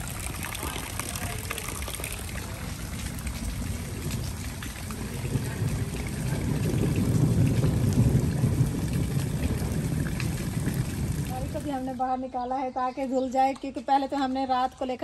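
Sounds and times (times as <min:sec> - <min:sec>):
water splashing: 0:00.0 - 0:12.0
rain hissing: 0:00.0 - 0:12.1
low rumble: 0:02.8 - 0:12.1.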